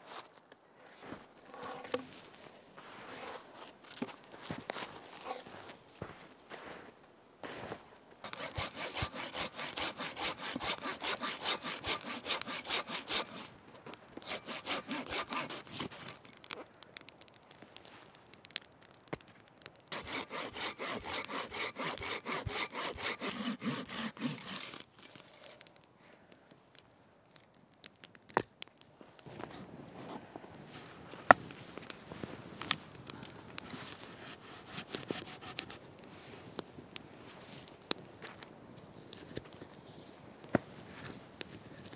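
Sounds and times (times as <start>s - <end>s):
hand saw cutting wood: 8.2s - 13.5s, 14.2s - 16.2s, 19.9s - 25.6s, 33.7s - 35.8s.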